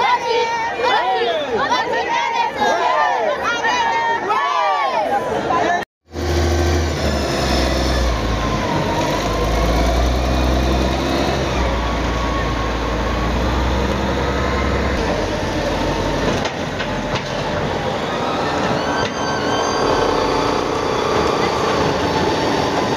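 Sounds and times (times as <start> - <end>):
wheel loader diesel engine rumbling: 6.1 - 22.9.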